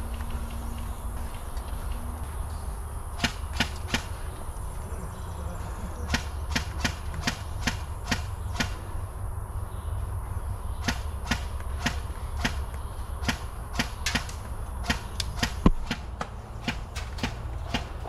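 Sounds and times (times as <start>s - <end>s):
airsoft gun shots: 3.2s - 4.2s, 6.1s - 8.8s, 10.8s - 18.0s.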